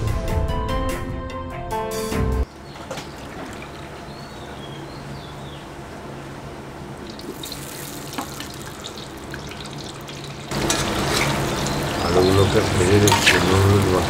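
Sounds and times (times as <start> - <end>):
oil crackling: 7.0 - 14.0
oil pouring into pan: 7.1 - 11.9.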